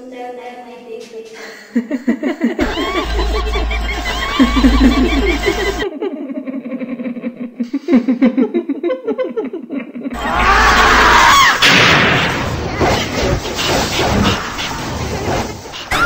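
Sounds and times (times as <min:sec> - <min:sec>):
eerie laughter: 0:01.7 - 0:16.0
low drone: 0:02.6 - 0:05.8.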